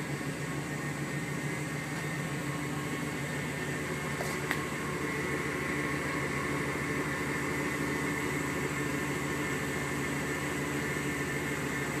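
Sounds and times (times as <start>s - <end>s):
pickup truck engine idling: 0.0s - 12.0s.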